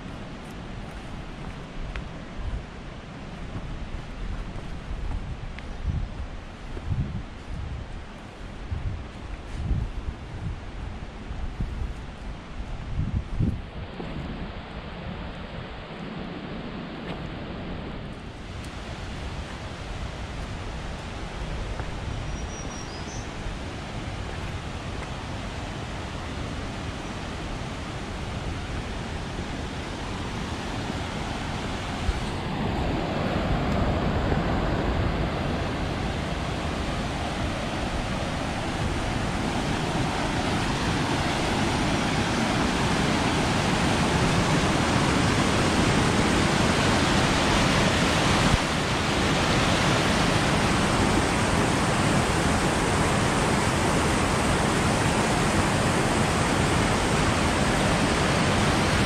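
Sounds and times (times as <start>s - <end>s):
creek rushing over rocks: 13.9s - 59.0s.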